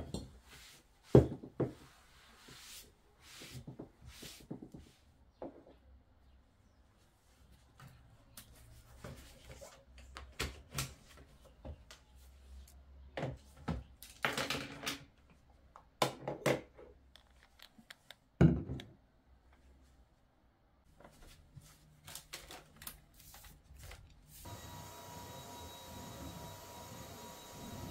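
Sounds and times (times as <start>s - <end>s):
objects knocking on a desktop: 18.4s - 18.9s.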